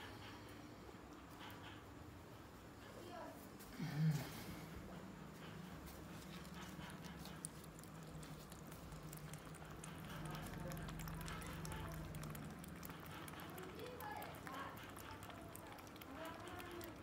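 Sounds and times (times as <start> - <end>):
low steady hum: 0.0 - 17.0
kittens lapping milk: 4.8 - 17.0.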